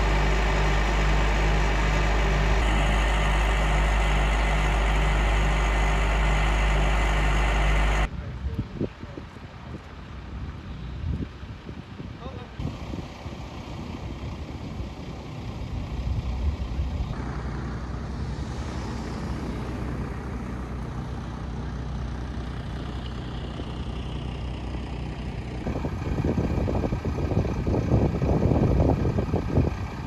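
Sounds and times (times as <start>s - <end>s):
heavy vehicle engines humming: 0.0s - 30.0s
wind buffeting microphone: 25.6s - 30.0s.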